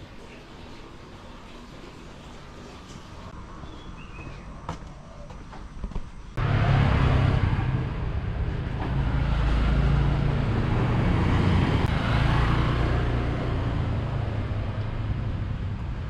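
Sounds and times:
street traffic: 1.9 - 16.0
motor scooter engines: 4.5 - 16.0
scooter passing: 6.4 - 16.0.

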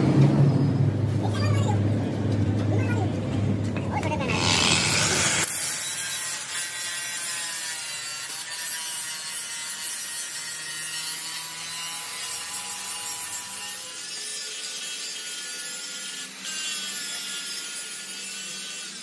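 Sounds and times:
disc grinding through steel: 4.2 - 19.0.

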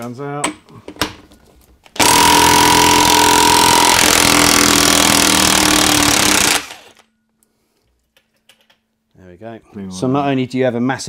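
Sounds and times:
impact wrench hammering: 2.0 - 7.0.

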